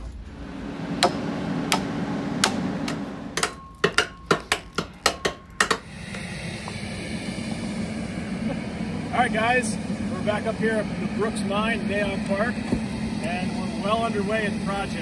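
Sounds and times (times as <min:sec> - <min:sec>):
metal hand tool striking rock: 0:01.0 - 0:05.9.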